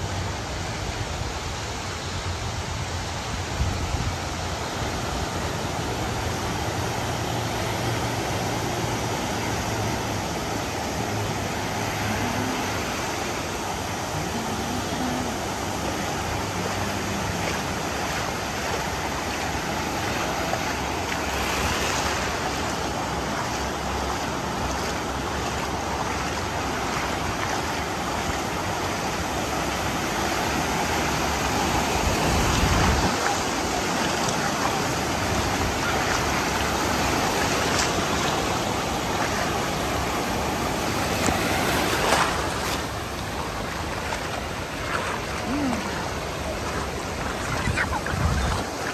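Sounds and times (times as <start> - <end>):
surf washing over sandy shore: 0.0 - 48.9
sharp water splash: 31.8 - 40.1, 41.0 - 48.9.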